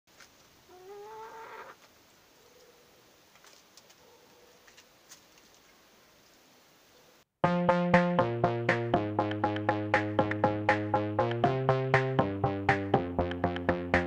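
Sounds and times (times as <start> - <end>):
chicken calling: 0.7 - 1.9.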